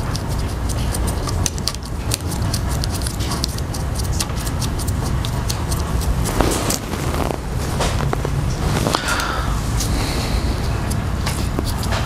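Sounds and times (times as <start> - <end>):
low hum: 5.7 - 11.3.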